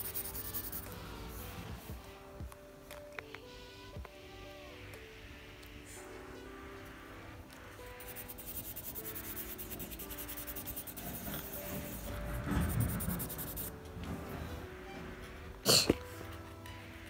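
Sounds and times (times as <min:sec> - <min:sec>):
marker scribbling on paper: 0:00.0 - 0:01.0, 0:07.8 - 0:13.7
dull rub or knock: 0:08.0 - 0:14.6.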